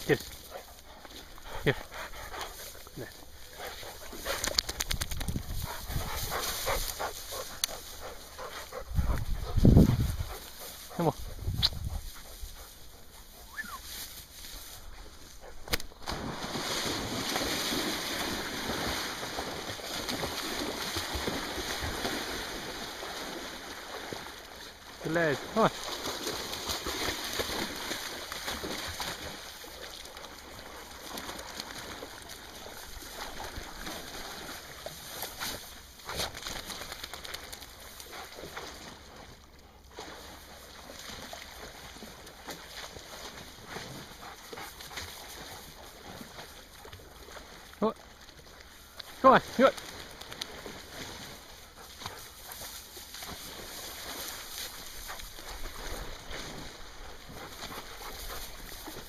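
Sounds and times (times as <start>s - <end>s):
rustling in long grass: 0.0s - 24.6s, 25.8s - 47.7s, 49.8s - 59.0s
dog swimming: 0.0s - 59.0s
wind noise on microphone: 4.5s - 6.9s, 8.7s - 10.4s, 11.2s - 12.5s
low wind rumble: 8.5s - 12.6s
flowing river water: 14.8s - 59.0s
river water rushing and splashing: 16.0s - 34.9s.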